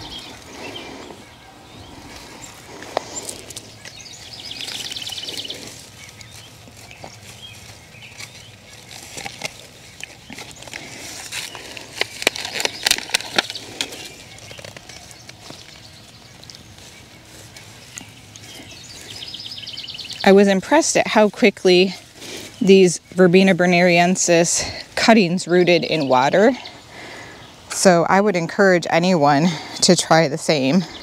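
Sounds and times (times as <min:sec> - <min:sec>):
hand tool scraping soil: 0:02.0 - 0:19.4.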